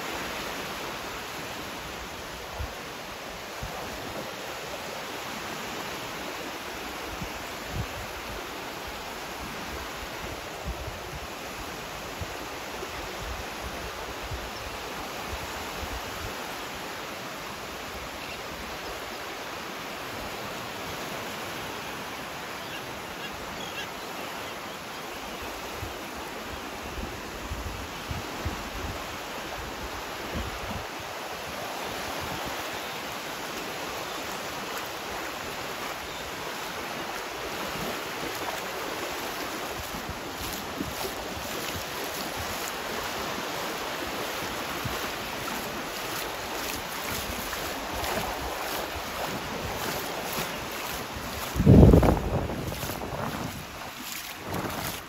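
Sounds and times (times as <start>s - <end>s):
small waves washing on shore: 0.0s - 55.0s
wind buffeting microphone: 46.6s - 55.0s.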